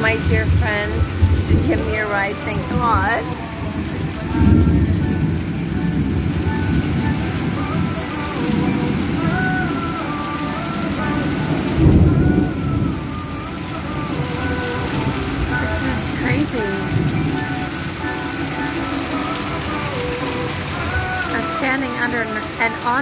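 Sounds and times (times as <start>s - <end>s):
rumble of thunder: 0.0s - 18.4s
heavy rain pouring: 0.0s - 23.0s.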